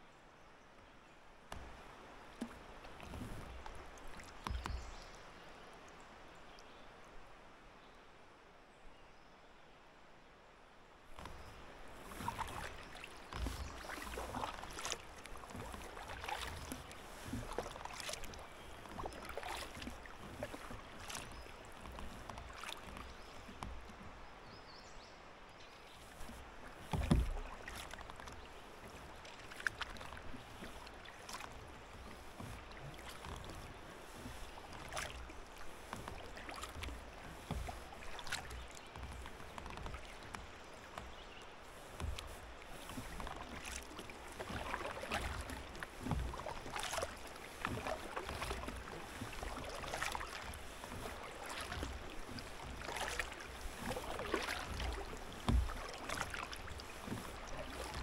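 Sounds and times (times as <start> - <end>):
kayak paddle strokes in water: 1.4 - 7.2, 11.0 - 58.0.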